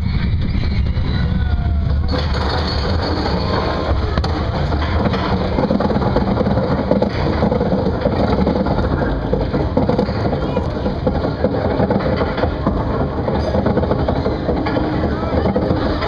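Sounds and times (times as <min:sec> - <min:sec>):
roller coaster chain lift clatter: 0:00.0 - 0:16.0.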